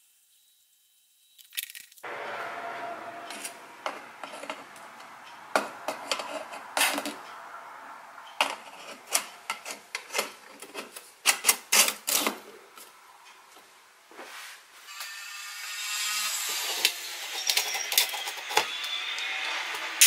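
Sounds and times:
metal rubbing and scraping: 0:02.0 - 0:12.6, 0:14.3 - 0:20.0.

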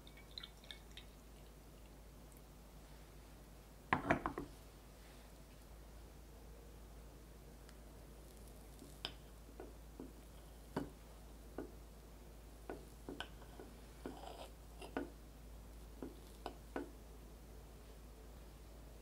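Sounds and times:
soft rustle of cake: 0:01.4 - 0:03.8, 0:04.5 - 0:05.9, 0:07.6 - 0:11.3, 0:12.8 - 0:16.7.

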